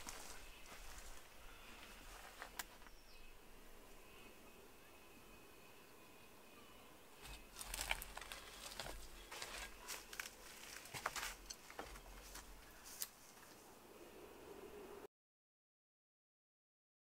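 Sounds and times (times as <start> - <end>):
leaves rustling in wind: 0.0 - 3.0, 7.2 - 15.0.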